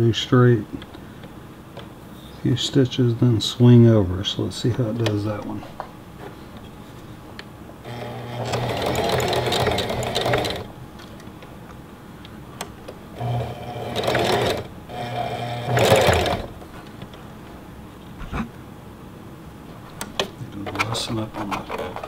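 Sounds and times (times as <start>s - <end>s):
sewing machine motor hum: 7.8s - 10.7s, 13.2s - 16.6s
sewing machine needle clatter: 7.9s - 10.7s, 13.2s - 14.7s, 15.6s - 16.5s.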